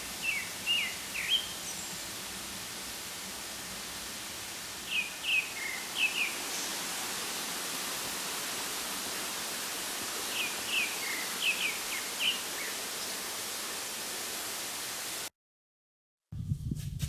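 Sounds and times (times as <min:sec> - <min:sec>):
steady hiss: 0:00.0 - 0:15.3
songbird chirping: 0:00.2 - 0:02.0, 0:04.9 - 0:06.8, 0:10.2 - 0:13.2.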